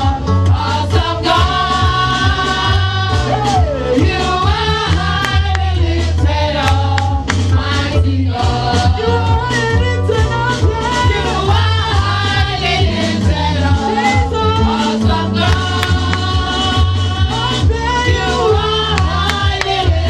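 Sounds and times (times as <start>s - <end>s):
backing vocalists: 0.0s - 20.0s
heavy bass line: 0.0s - 20.0s
steady drum beat: 0.0s - 20.0s
woman singing gospel: 7.8s - 20.0s.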